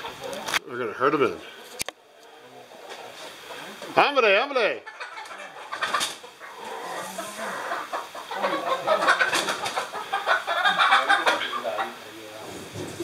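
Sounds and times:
hens clucking and squawking: 0.0 - 13.0
rustling and flapping: 5.2 - 6.2, 9.2 - 9.9.

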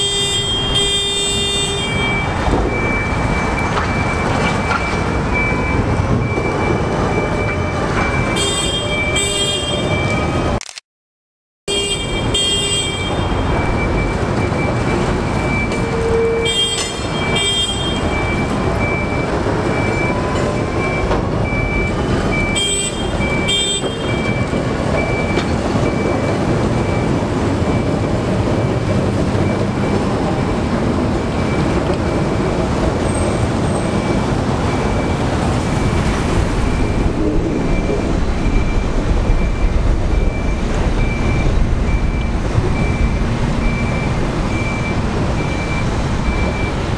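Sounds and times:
diesel engine running: 17.2 - 46.9
high warning beep: 36.6 - 46.9.

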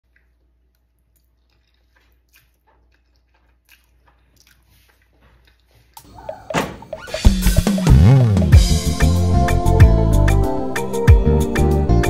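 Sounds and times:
person eating noodles: 0.1 - 6.5.

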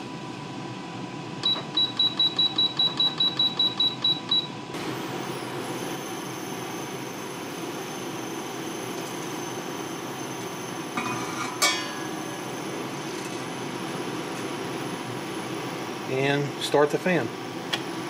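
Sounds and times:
cooktop whir with high whine: 0.0 - 18.0
cooktop control panel beeping: 1.4 - 4.6.

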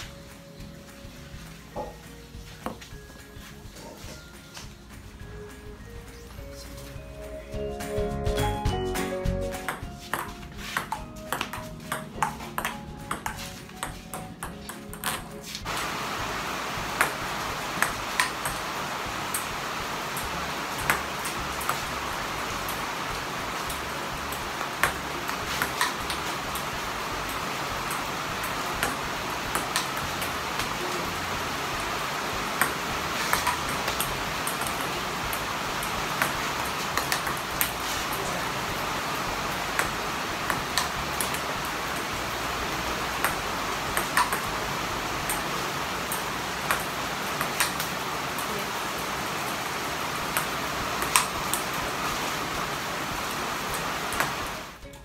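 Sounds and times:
background music: 0.0 - 48.8, 50.2 - 55.0
steady hiss: 0.0 - 54.8
ping-pong ball clicking: 7.8 - 15.4, 17.0 - 18.6, 20.2 - 21.9, 22.7 - 30.8, 32.6 - 37.8, 39.7 - 42.2, 43.1 - 44.6, 45.2 - 48.5, 50.3 - 51.8.

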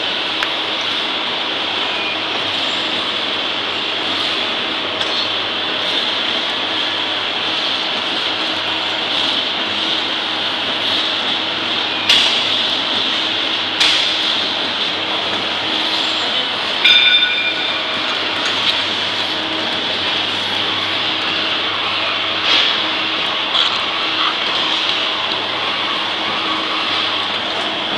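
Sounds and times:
machine whir and hiss: 0.0 - 27.9
ringing metallic clink: 16.8 - 17.8.

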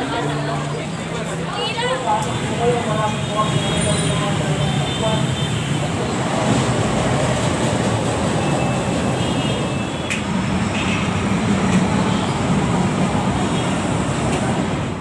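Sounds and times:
light rail train rumbling: 0.0 - 15.0.

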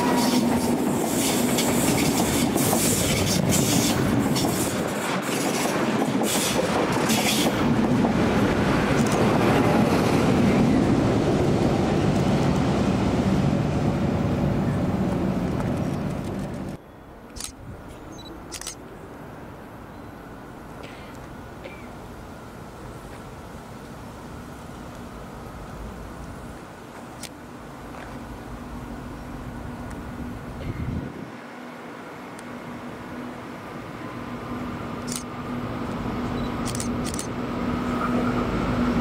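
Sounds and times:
train wheels clattering on track: 0.0 - 10.6.

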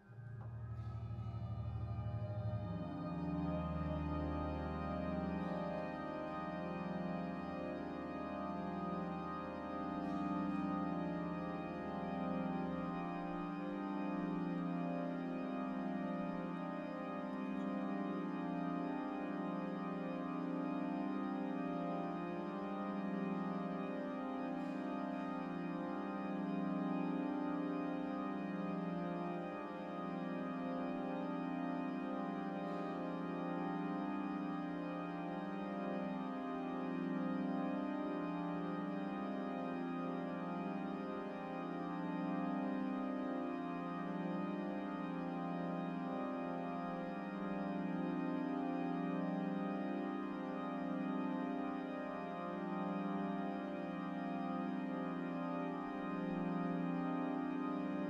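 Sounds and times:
pipe organ chord: 0.0 - 58.0.

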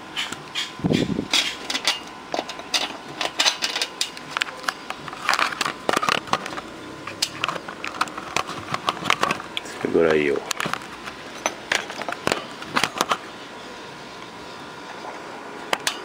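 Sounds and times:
clicks and taps handling parts: 1.3 - 13.2.

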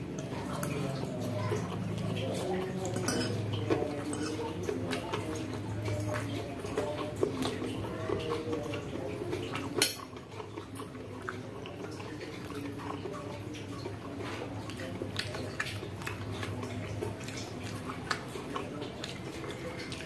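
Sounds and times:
fork scraping ceramic bowl: 2.8 - 4.6.

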